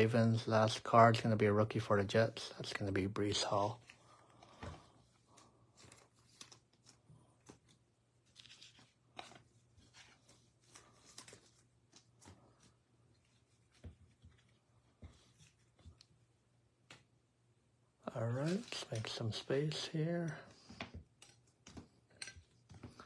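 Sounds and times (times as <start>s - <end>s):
cards rustling and clicking: 3.4s - 16.2s, 18.2s - 23.0s.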